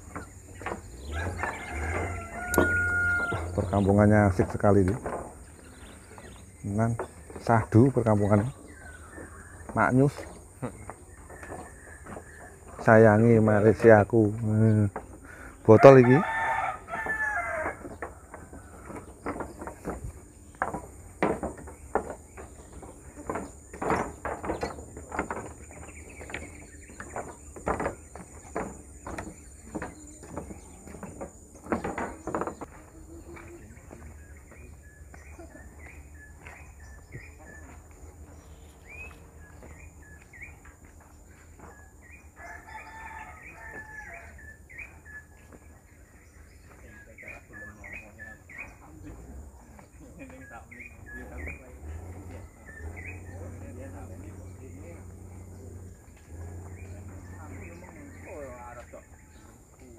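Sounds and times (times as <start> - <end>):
small birds chirping: 0.0 - 59.9
rooster crowing: 1.0 - 3.9, 15.6 - 19.2, 42.3 - 44.6.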